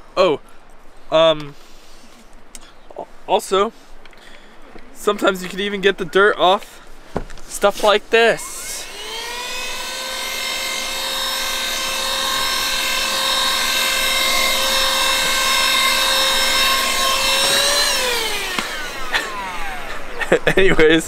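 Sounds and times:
handheld vacuum whining: 8.4 - 20.3.

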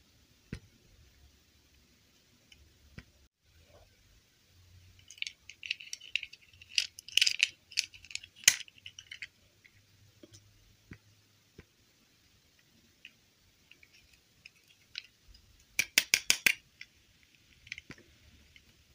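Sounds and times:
plastic clicks and rustles: 5.0 - 10.4, 13.0 - 18.8.

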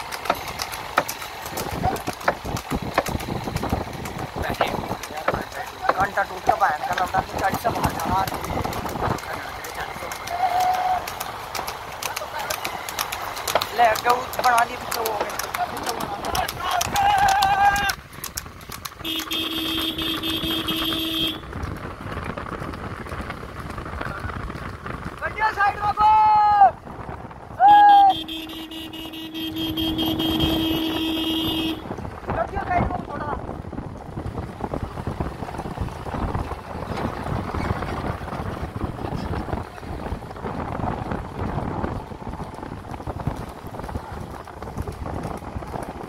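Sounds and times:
vehicle road noise rushing: 0.0 - 46.0
wind buffeting microphone: 0.0 - 46.0
vehicle horn: 19.0 - 21.5, 27.6 - 32.0.

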